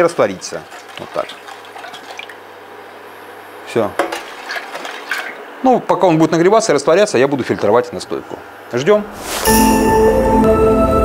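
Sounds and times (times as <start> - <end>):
short whoosh: 9.0 - 10.0
music of chiming notes: 9.2 - 11.0.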